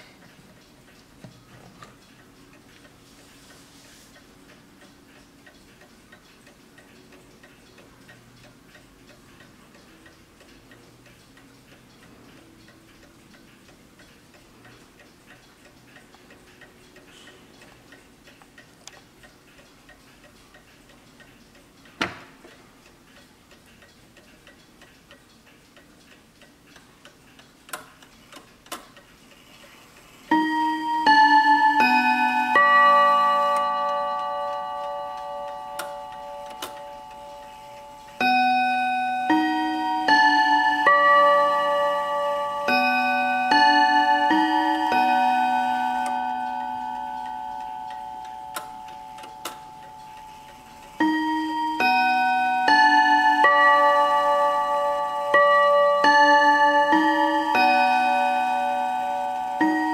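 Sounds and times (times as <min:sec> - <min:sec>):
clock ticking: 0:00.0 - 0:59.9
sharp clock clicks: 0:04.1 - 0:59.9.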